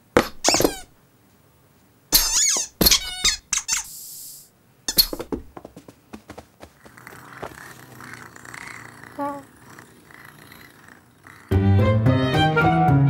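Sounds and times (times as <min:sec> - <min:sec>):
kitten mewing: 0:06.8 - 0:11.8.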